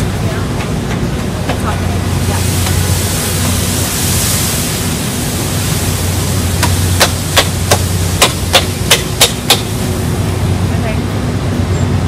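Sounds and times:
steady hiss: 1.4s - 12.0s
metal spatula clacking on griddle: 6.6s - 9.7s.

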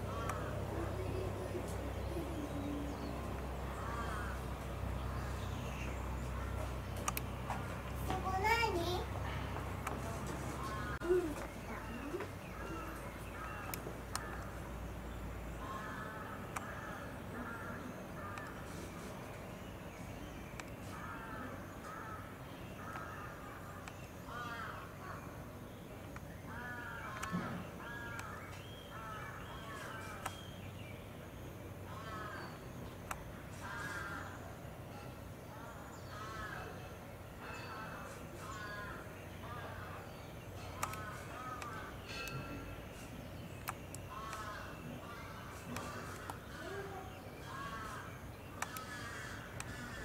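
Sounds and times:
crow cawing: 0.1s - 0.8s, 3.7s - 4.4s, 15.6s - 18.7s, 20.9s - 25.3s, 26.5s - 30.2s, 31.9s - 32.6s, 33.5s - 34.4s, 36.0s - 40.1s, 40.8s - 42.7s, 44.0s - 50.0s
faint sharp clicks: 6.9s - 7.3s, 33.0s - 33.2s, 40.6s - 42.4s, 43.0s - 44.6s, 48.6s - 49.8s
sharp click: 7.0s - 7.3s.

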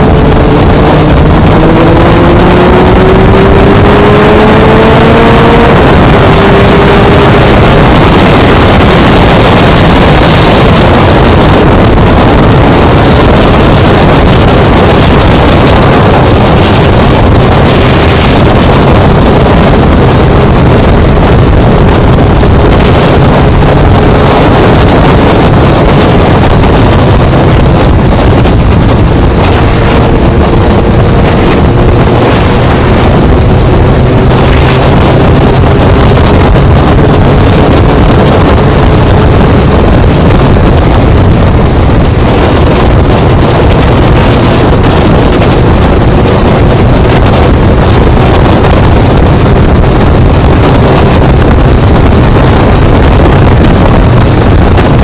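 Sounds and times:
motorcycle engine hum: 0.0s - 55.0s
wind buffeting microphone: 0.0s - 55.0s.

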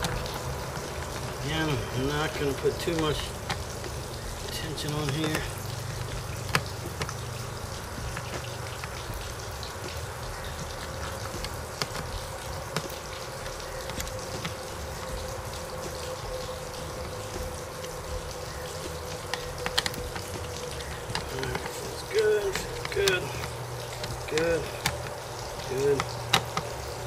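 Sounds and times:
background hiss: 0.0s - 27.0s.

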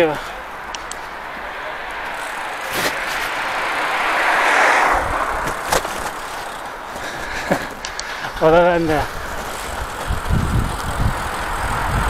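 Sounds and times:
car passing close by: 0.4s - 7.0s.

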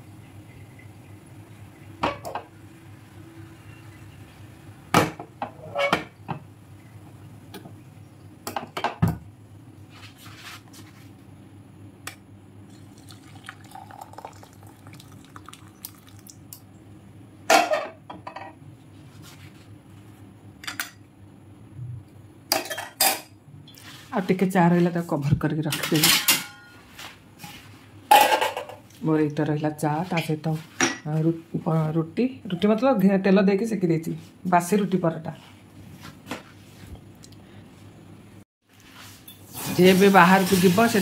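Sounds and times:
tea pouring into cup: 12.7s - 16.5s
metal kitchenware clinking: 25.7s - 26.8s.

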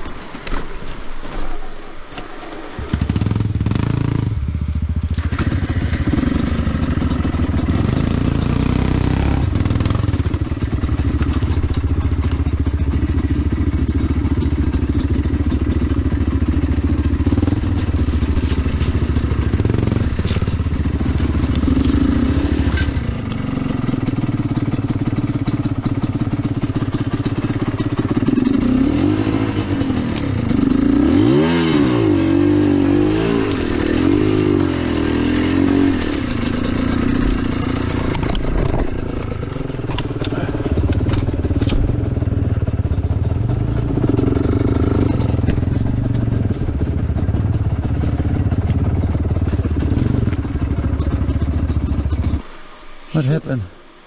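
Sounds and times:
dirt bike engine revving: 2.8s - 52.5s
knocks from bike: 35.9s - 42.0s, 44.1s - 46.3s.

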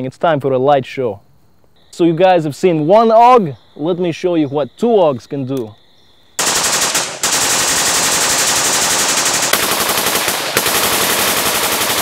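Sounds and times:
automatic rifle fire: 6.4s - 12.0s.

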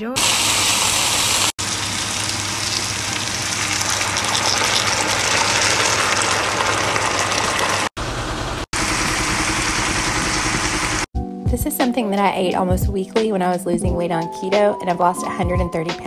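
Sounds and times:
water hissing in hot pan: 0.2s - 7.9s, 8.8s - 11.1s.

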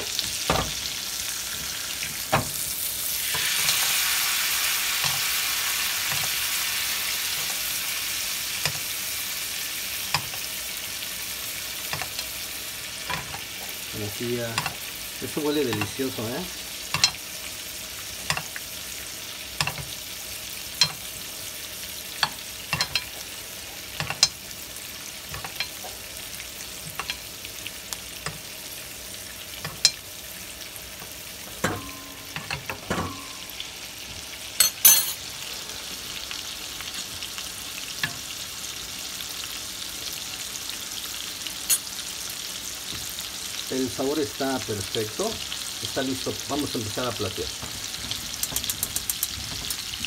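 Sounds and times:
steaks sizzling in butter: 0.0s - 50.0s
spoon scraping and clattering: 22.2s - 23.1s.

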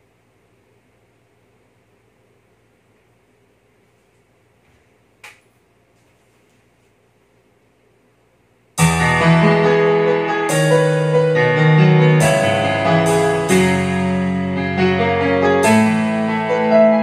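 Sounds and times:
piano-led backing track: 8.8s - 17.0s.

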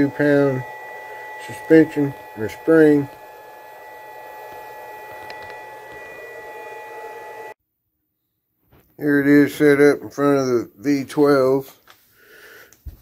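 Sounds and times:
high-pitched electrical whine: 0.0s - 7.6s.

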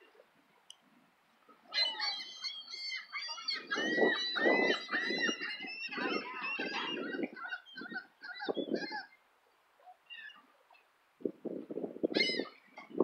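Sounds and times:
gulls calling: 1.7s - 9.2s.

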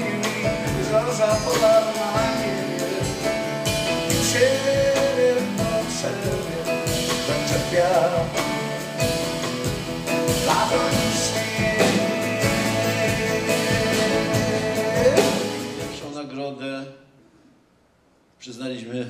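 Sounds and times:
man singing: 0.0s - 9.2s, 10.1s - 16.0s
keyboard accompaniment: 0.0s - 16.1s.

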